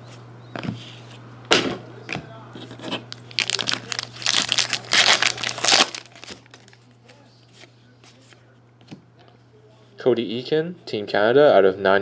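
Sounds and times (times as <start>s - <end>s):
card pack wrapper tearing: 3.1s - 6.8s.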